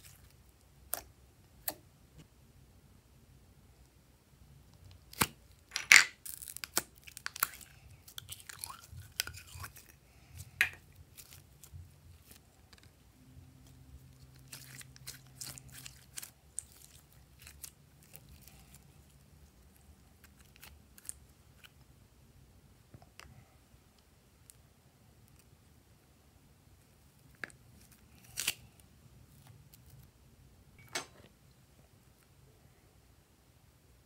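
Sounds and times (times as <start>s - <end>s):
slime squelching and crackling: 6.2s - 21.8s.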